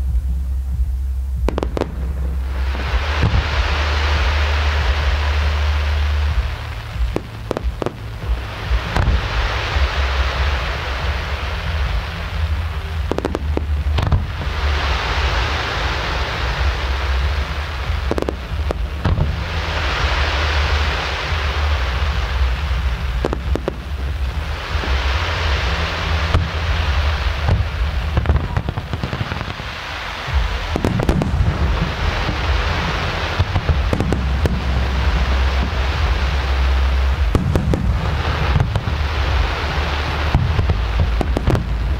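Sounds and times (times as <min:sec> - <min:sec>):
crackling hiss of fireworks: 0:00.0 - 0:41.9
firework bangs: 0:00.0 - 0:41.9
steady low rumble: 0:00.0 - 0:41.9.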